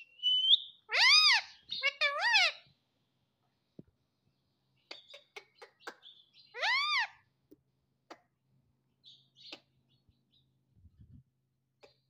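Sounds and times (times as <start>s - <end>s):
parakeet whistle: 0.0s - 1.4s
faint parakeet chirps: 0.0s - 2.7s, 4.8s - 7.2s, 9.0s - 10.5s.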